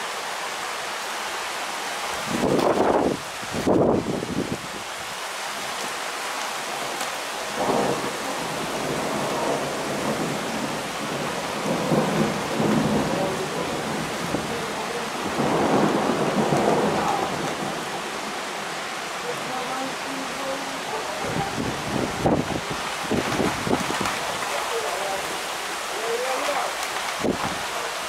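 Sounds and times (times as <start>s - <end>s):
steady rain: 0.0s - 28.0s
thunder rolling: 7.5s - 18.4s, 21.2s - 24.4s.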